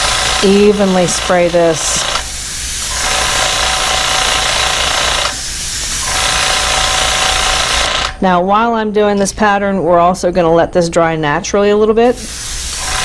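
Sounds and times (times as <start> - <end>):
airbrush spray hiss: 0.0 - 6.8, 12.1 - 13.0
compressor hum: 0.0 - 13.0.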